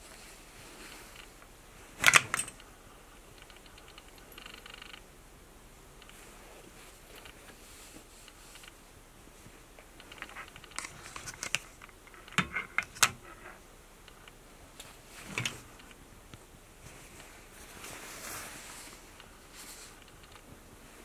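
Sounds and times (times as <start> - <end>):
satin fabric rustling: 0.0 - 2.0, 6.1 - 11.8, 16.8 - 21.0
clothes hangers clicking: 2.0 - 2.6.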